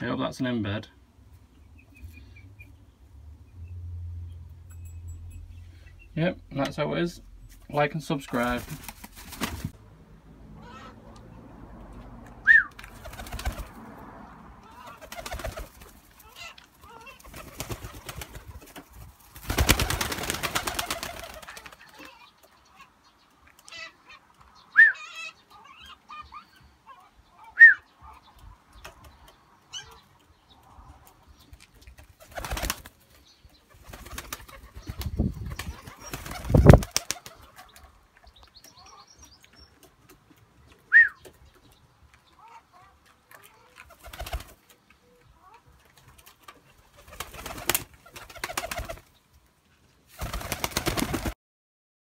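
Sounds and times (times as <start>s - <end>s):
young pigeons peeping: 0.0s - 4.4s, 14.6s - 51.4s
pigeon wings flapping: 8.4s - 9.8s, 12.7s - 13.8s, 14.8s - 16.0s, 17.2s - 22.2s, 32.0s - 33.0s, 33.7s - 37.8s, 43.8s - 44.7s, 46.9s - 49.1s, 50.1s - 51.4s.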